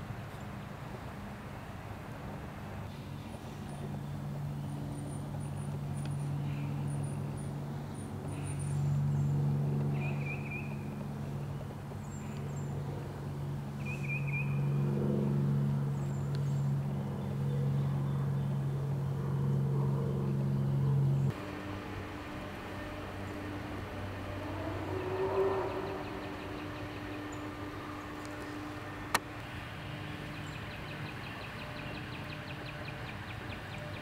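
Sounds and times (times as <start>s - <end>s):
low motor hum: 0.0s - 34.0s
small birds chirping: 25.0s - 34.0s.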